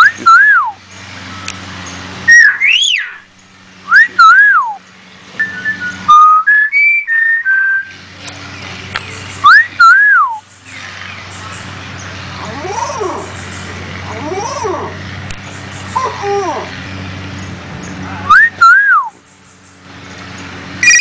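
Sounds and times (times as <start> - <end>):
myna whistling: 0.0 - 1.6, 2.3 - 4.8, 5.4 - 8.0, 9.4 - 10.5, 18.3 - 19.2, 20.8 - 21.0.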